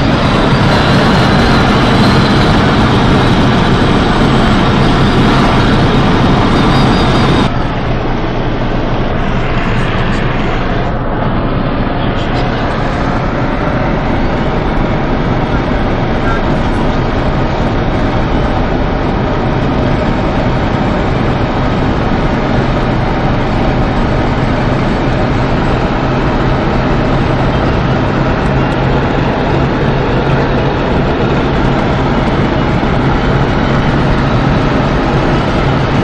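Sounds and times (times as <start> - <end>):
engine drone: 0.0 - 36.0
wind and road noise: 0.0 - 36.0.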